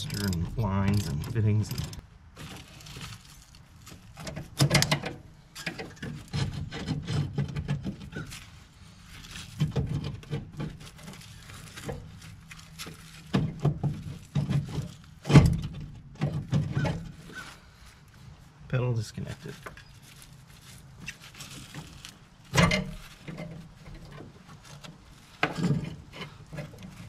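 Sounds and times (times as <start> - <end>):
metallic clicks and knocks: 0.0 - 2.0.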